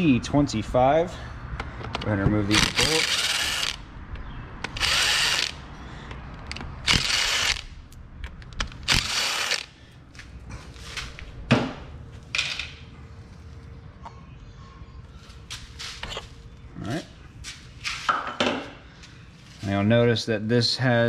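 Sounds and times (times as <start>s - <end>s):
cordless drill spinning bolts: 2.6s - 3.8s, 4.6s - 5.6s, 6.5s - 7.6s, 8.6s - 9.7s.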